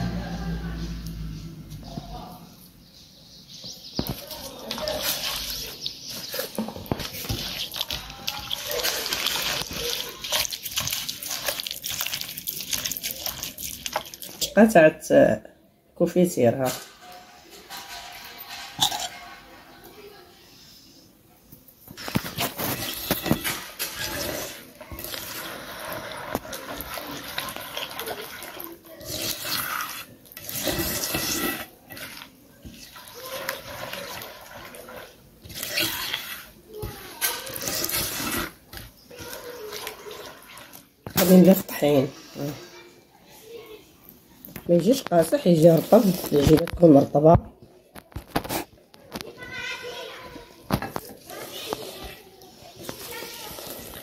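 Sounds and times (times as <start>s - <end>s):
hand squelching wet mixture: 4.0s - 14.7s, 22.0s - 42.7s, 51.0s - 54.0s
small wet clicks and splashes: 4.1s - 14.6s.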